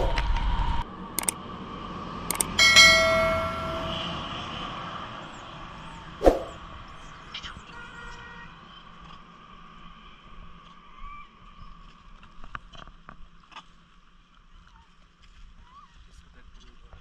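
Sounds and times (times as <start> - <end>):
low outdoor background noise: 0.0 - 17.0
mouse clicks: 2.3 - 2.5
bright bell ding: 2.3 - 4.3.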